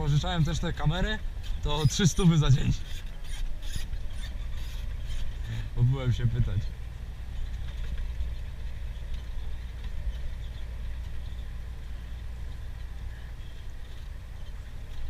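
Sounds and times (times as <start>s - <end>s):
truck engine rumble: 0.0s - 15.0s.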